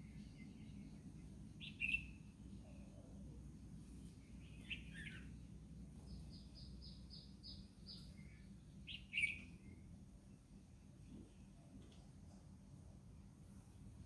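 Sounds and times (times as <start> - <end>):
birds chirping: 0.0 - 3.2, 4.0 - 10.5
low background hum: 0.0 - 14.0.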